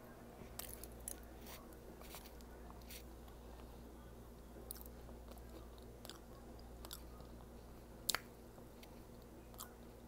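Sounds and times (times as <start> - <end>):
person chewing food: 4.7 - 9.8.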